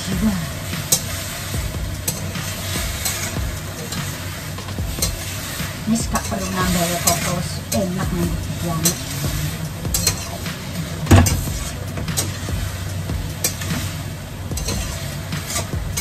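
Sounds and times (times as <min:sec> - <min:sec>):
utensil scraping and knocking pan: 0:00.0 - 0:16.0
vegetables sizzling in a pan: 0:00.0 - 0:16.0.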